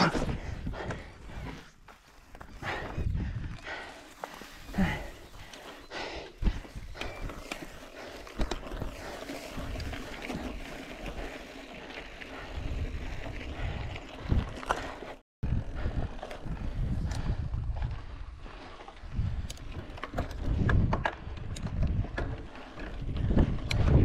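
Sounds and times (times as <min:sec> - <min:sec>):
bike rattling over bumps: 0:00.0 - 0:24.0
bike tyres rolling through grass: 0:00.3 - 0:24.0
wind noise on microphone: 0:02.5 - 0:03.9, 0:12.4 - 0:14.7, 0:15.4 - 0:24.0.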